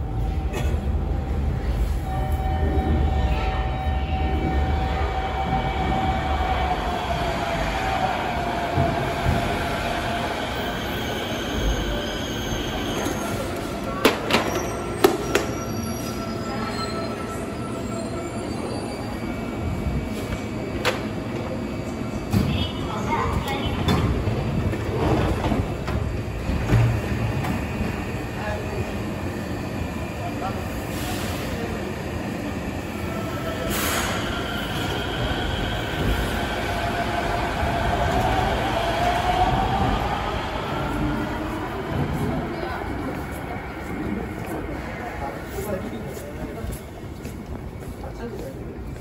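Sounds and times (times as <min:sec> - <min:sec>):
train running: 0:00.0 - 0:16.9, 0:32.4 - 0:49.0
train wheels squealing: 0:10.6 - 0:13.6, 0:14.4 - 0:19.4.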